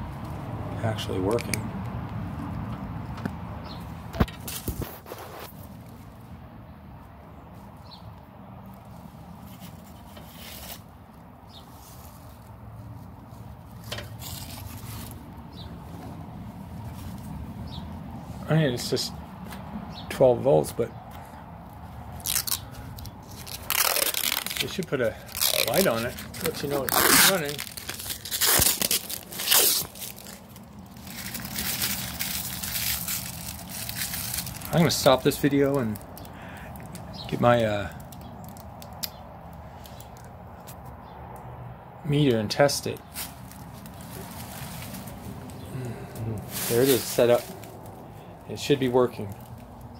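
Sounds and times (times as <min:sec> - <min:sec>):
rustling scrapes: 0:04.4 - 0:06.2, 0:08.8 - 0:10.9, 0:11.5 - 0:16.0, 0:22.2 - 0:35.2, 0:43.1 - 0:45.6, 0:46.4 - 0:48.0
plastic wrapping crinkling: 0:22.2 - 0:37.0, 0:43.0 - 0:45.6, 0:46.5 - 0:48.0.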